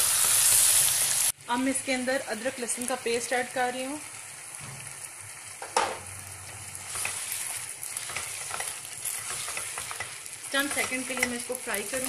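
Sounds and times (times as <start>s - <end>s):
meat sizzling in hot oil: 0.0s - 12.0s
spatula stirring in pot: 6.7s - 12.0s.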